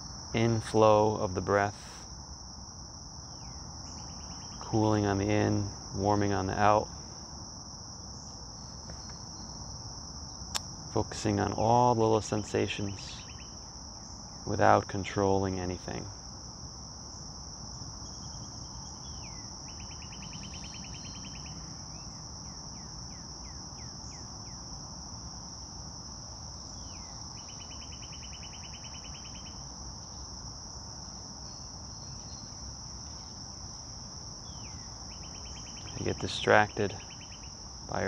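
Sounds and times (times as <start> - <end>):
high-pitched insect drone: 0.0 - 38.0
songbird singing trill: 3.2 - 7.0, 8.1 - 16.1, 17.1 - 24.7, 26.4 - 30.4, 31.2 - 38.0.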